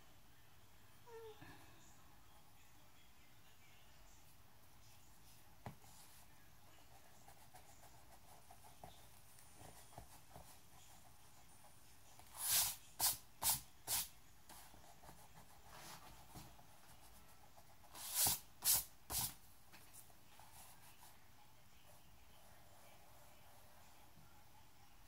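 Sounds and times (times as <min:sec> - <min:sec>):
pencil scratching on paper: 0:05.6 - 0:21.2.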